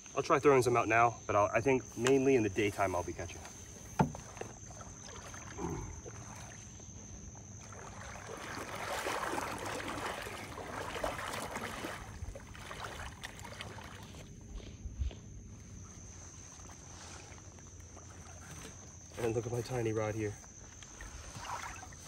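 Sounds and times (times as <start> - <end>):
water sloshing around wading legs: 1.8 - 22.0.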